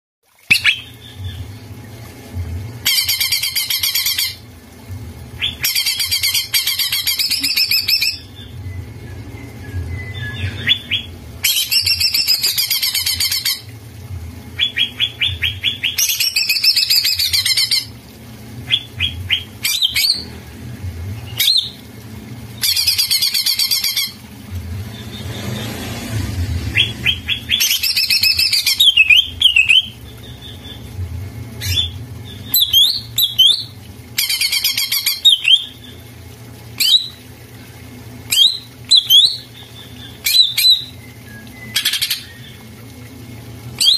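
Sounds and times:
bird ticking notes: 0:14.5 - 0:17.9
bird singing: 0:26.8 - 0:30.9.

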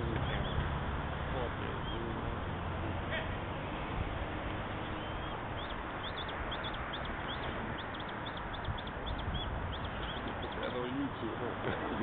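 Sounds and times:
background hiss and rumble: 0:00.0 - 0:12.0
small bird chirping: 0:04.8 - 0:10.9.

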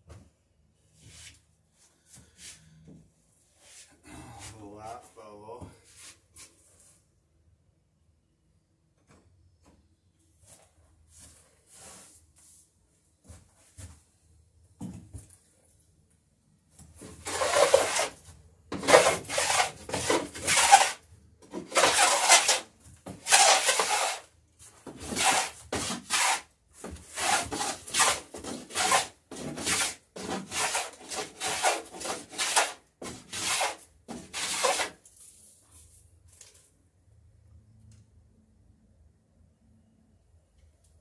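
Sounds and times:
hand tool scraping wooden plank: 0:17.0 - 0:35.0.

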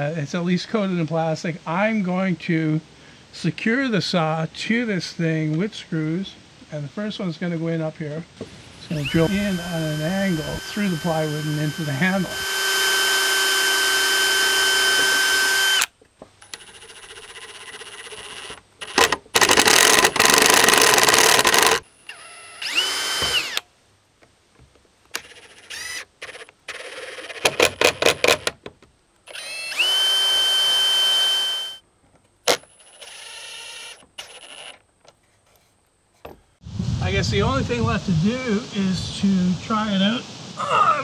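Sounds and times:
cordless drill motor whine: 0:08.4 - 0:15.9, 0:16.5 - 0:23.7, 0:25.2 - 0:27.5, 0:29.3 - 0:31.8, 0:32.5 - 0:34.8.

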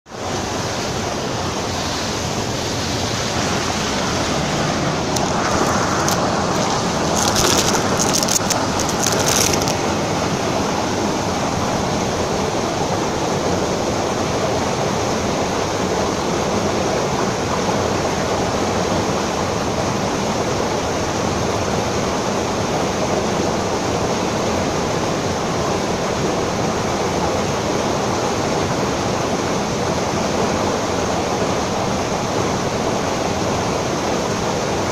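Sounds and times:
running water rushing: 0:00.1 - 0:34.9
brief crackles: 0:05.1 - 0:09.8.

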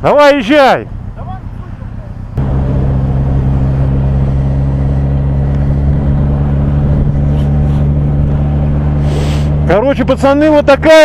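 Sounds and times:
wind and road noise: 0:00.0 - 0:11.0
motorcycle engine running: 0:02.3 - 0:11.0.

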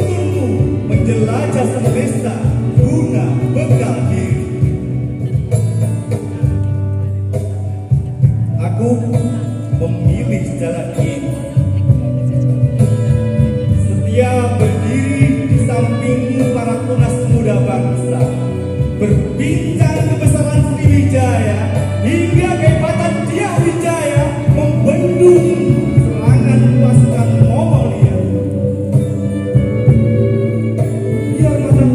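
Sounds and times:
bass line: 0:00.0 - 0:31.9
live band over loudspeakers: 0:00.0 - 0:31.9
person singing: 0:22.0 - 0:31.9.

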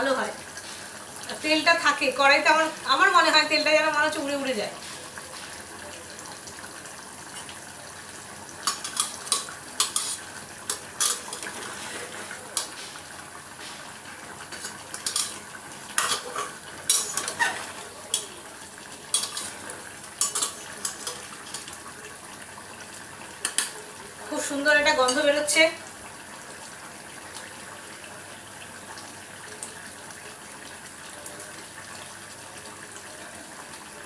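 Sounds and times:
food sizzling in a pan: 0:00.0 - 0:34.0
utensil scraping and knocking pan: 0:16.0 - 0:18.3.

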